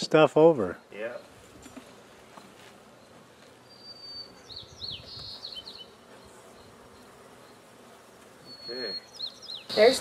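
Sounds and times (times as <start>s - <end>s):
bees buzzing: 0.2s - 10.0s
bird whistling: 3.6s - 6.0s, 8.4s - 10.0s.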